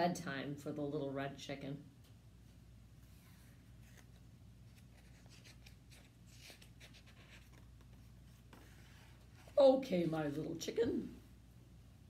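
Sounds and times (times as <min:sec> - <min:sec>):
book pages turning: 0:03.2 - 0:10.3
paper rustling: 0:03.3 - 0:09.6.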